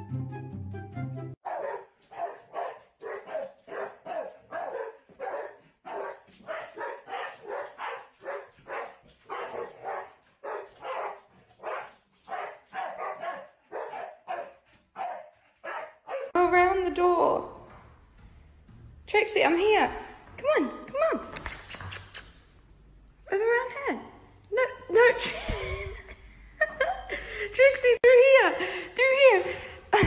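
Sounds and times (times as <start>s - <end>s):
dogs barking: 1.4s - 16.4s.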